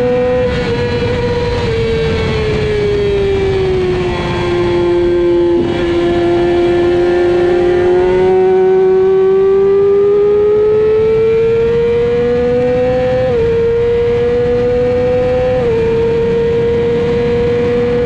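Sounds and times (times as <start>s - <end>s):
wind rush: 0.0s - 9.0s
motorcycle engine accelerating: 0.0s - 18.0s.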